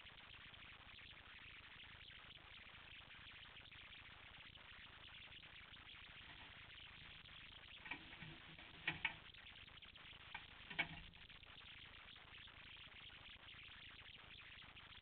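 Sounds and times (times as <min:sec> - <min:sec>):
faint steady hiss: 0:00.0 - 0:15.0
soft clicks and taps: 0:07.8 - 0:09.2, 0:10.3 - 0:11.2.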